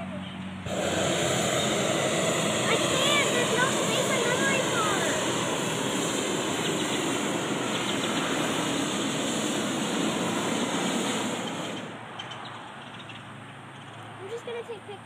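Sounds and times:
propane burner firing: 0:00.6 - 0:13.1.

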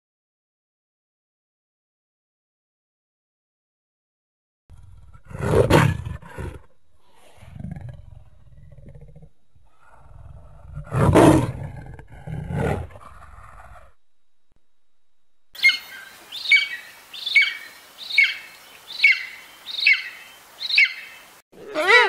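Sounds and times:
leopard rasping roar: 0:04.7 - 0:14.0, 0:21.6 - 0:22.0
eagle high piping calls: 0:15.6 - 0:22.0.

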